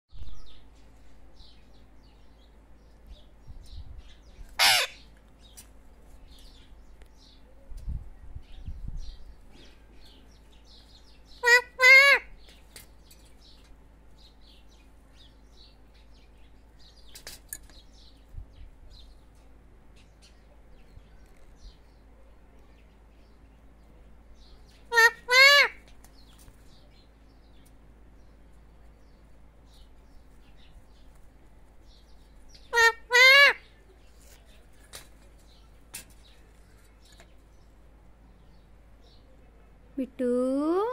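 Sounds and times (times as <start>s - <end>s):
small birds chirping: 0.1s - 40.9s
shrill parakeet calls: 4.5s - 5.1s, 11.3s - 12.4s, 24.8s - 25.8s, 32.5s - 33.8s
parakeet screeching: 4.6s - 5.0s, 11.4s - 12.3s, 24.9s - 25.8s, 32.7s - 33.7s.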